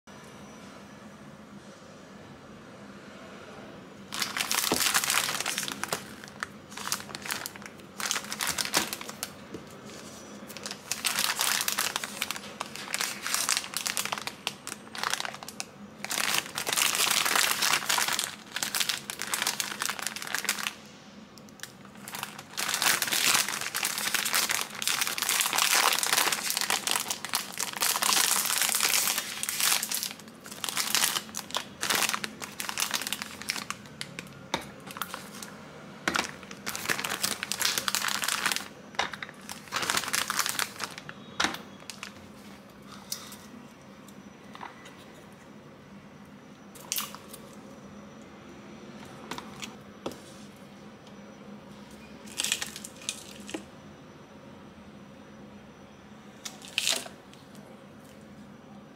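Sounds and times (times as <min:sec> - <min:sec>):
plastic snack bag crinkling: 0:04.1 - 0:20.9, 0:21.5 - 0:43.0, 0:46.8 - 0:47.6, 0:52.2 - 0:53.7, 0:56.4 - 0:57.2.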